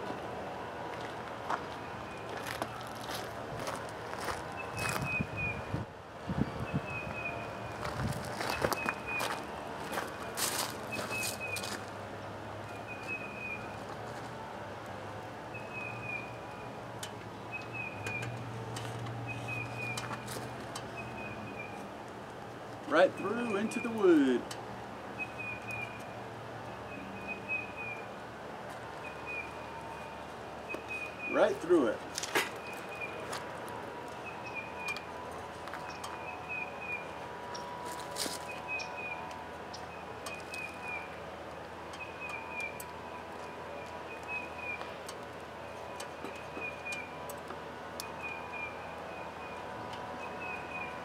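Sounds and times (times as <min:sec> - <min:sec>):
bird chirping: 0:06.4 - 0:07.8, 0:10.9 - 0:11.7, 0:12.7 - 0:13.8, 0:15.5 - 0:16.8, 0:17.4 - 0:18.4, 0:19.2 - 0:21.9, 0:25.2 - 0:26.1, 0:26.7 - 0:28.1, 0:28.9 - 0:31.6, 0:34.2 - 0:35.1, 0:35.8 - 0:37.8, 0:38.4 - 0:41.2, 0:41.9 - 0:42.9, 0:43.7 - 0:45.0, 0:45.6 - 0:47.2.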